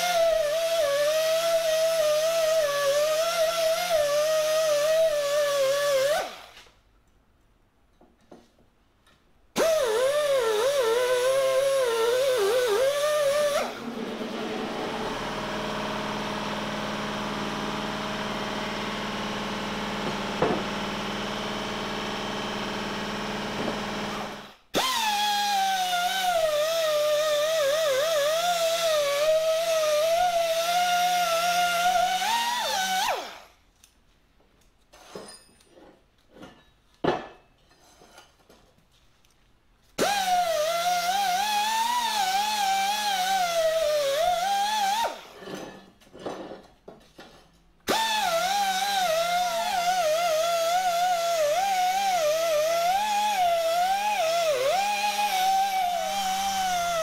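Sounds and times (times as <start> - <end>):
die grinder whining: 9.6 - 33.5, 40.0 - 45.7, 47.9 - 57.0.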